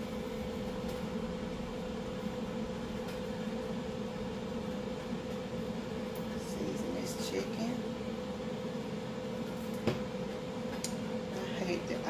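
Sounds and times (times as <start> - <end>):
machine hum with steady tone: 0.0 - 12.0.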